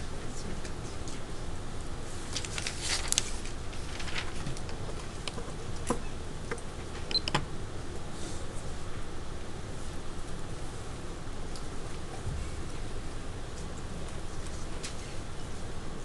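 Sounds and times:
low steady hum: 0.0s - 16.0s
small clicks and rustles: 2.3s - 7.1s.

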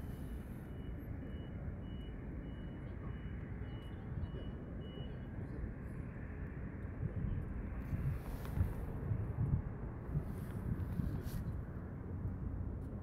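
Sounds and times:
faint high-pitched beep: 0.1s - 6.2s.

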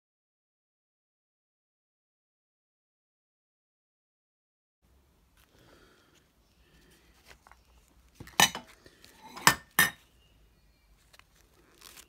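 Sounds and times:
metal tool clinking: 8.2s - 10.1s.

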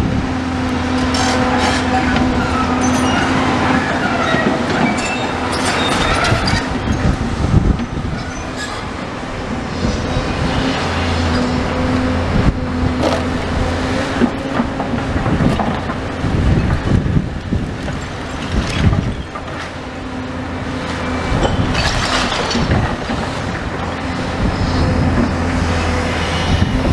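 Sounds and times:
excavator engine running: 0.0s - 26.9s
high metallic squeals: 1.0s - 7.2s, 8.0s - 8.9s.

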